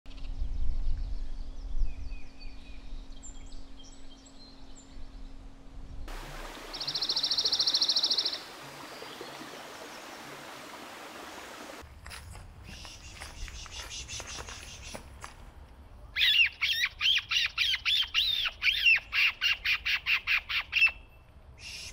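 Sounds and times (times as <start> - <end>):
outdoor hiss: 6.1 - 11.9
bird chirps and calls: 6.6 - 9.2, 16.2 - 21.9.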